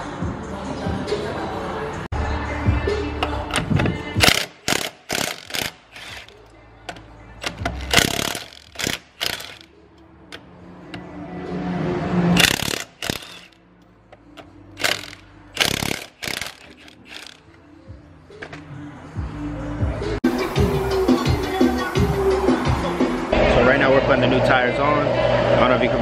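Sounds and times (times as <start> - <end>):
background music: 0.0 - 25.0
impact wrench hammering: 3.2 - 9.7, 12.4 - 13.6, 14.8 - 17.5.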